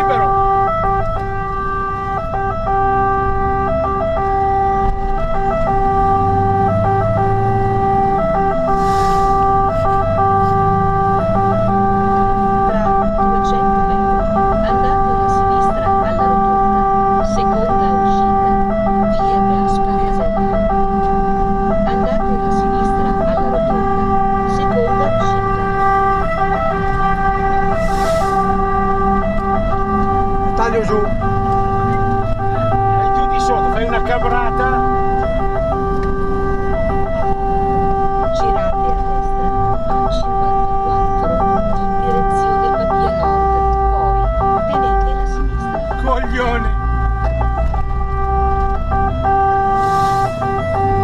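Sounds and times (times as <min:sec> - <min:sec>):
fire engine two-tone siren: 0:00.0 - 0:51.0.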